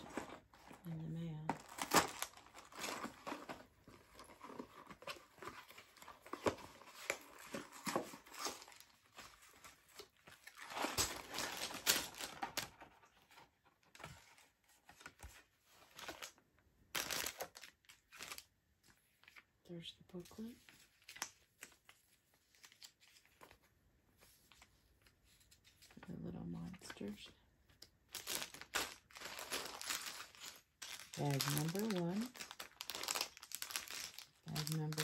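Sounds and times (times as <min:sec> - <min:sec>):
plastic crinkling: 0:00.0 - 0:13.0, 0:27.8 - 0:35.0
cardboard tearing: 0:01.6 - 0:12.8.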